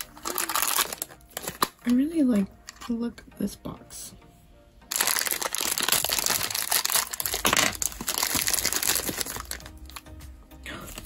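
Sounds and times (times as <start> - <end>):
plastic wrapper crinkling: 0.0 - 2.8, 4.9 - 10.1.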